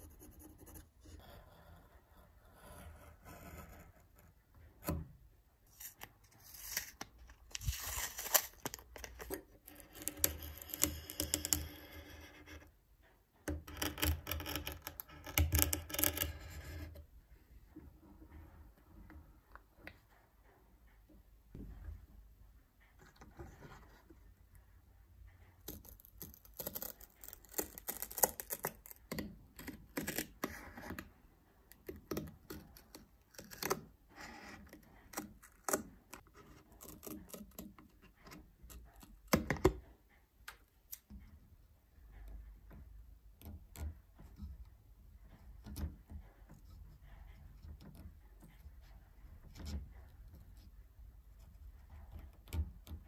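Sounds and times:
tape crinkling and tearing: 5.7s - 9.4s.

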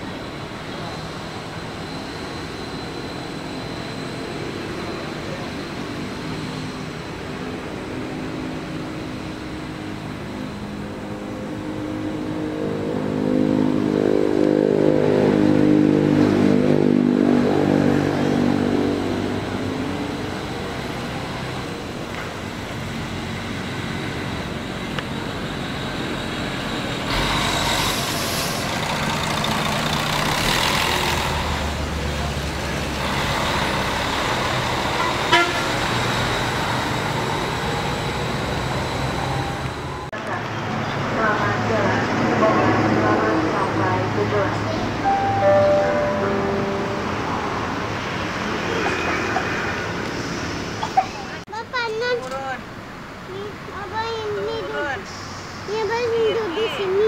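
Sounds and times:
coach engine driving past: 26.2s - 51.3s.

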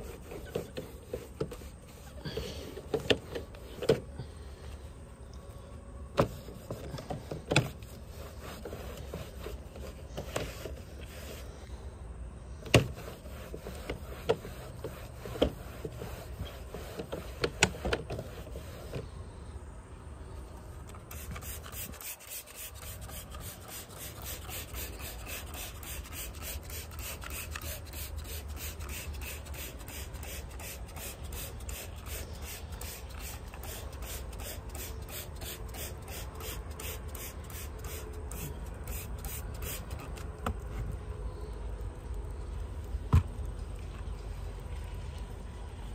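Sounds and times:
rag scrubbing vinyl siding: 0.0s - 4.3s, 6.1s - 11.6s, 12.6s - 19.1s, 20.8s - 41.0s.

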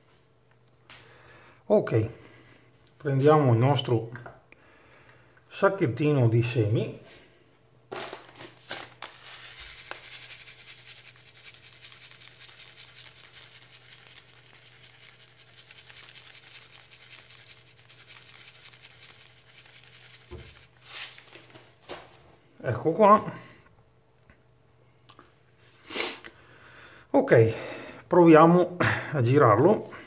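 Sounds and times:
plastic bag crinkling: 7.9s - 22.1s
seeds rustling in plastic bag: 8.0s - 21.5s.

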